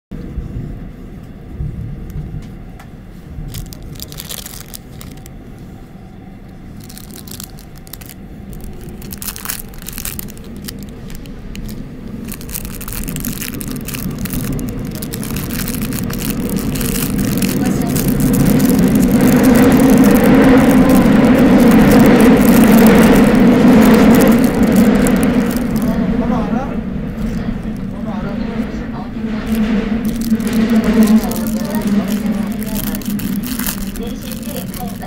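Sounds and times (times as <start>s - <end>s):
subway train rumble: 0.1s - 35.0s
clicks and rattles: 6.8s - 26.0s.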